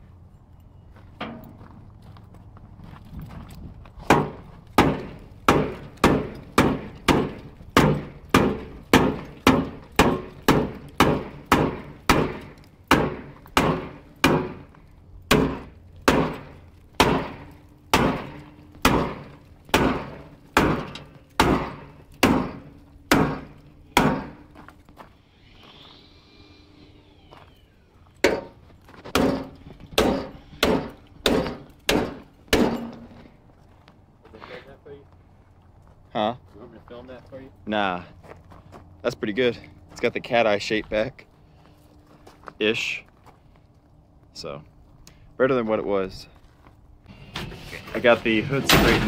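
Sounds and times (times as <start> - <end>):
hammer blows on sheet metal: 4.1 - 24.5, 28.2 - 33.2.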